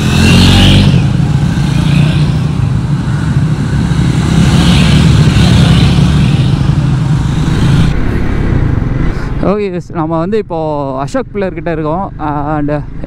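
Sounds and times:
motorcycles riding past: 0.0s - 9.4s.

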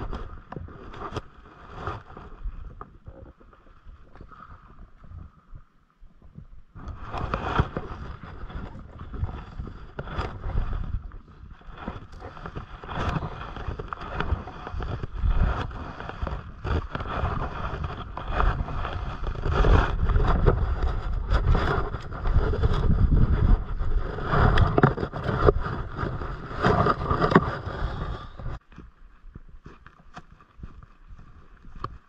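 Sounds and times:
wind buffeting microphone: 4.2s - 28.6s.

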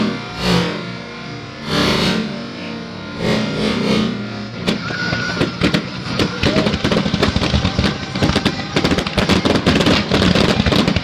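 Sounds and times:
low rumble: 0.0s - 11.0s
fireworks popping and banging: 4.6s - 11.0s.

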